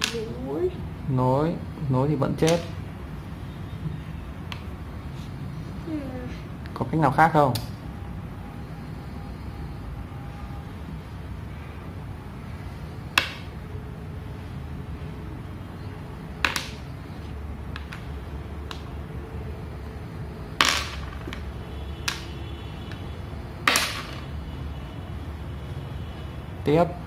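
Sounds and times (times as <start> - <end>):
stones clacking on a board: 16.4 - 16.8, 20.6 - 21.5.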